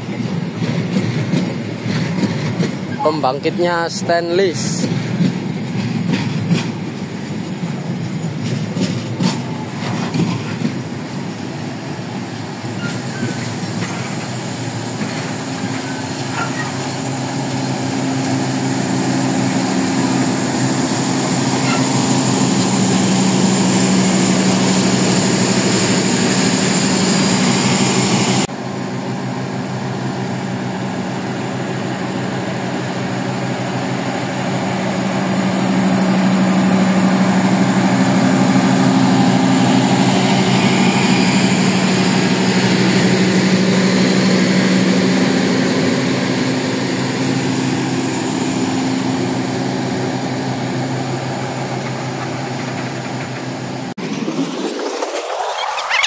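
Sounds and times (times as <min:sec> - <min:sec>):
train rolling past: 0:00.0 - 0:56.0
diesel generator humming: 0:10.8 - 0:53.9.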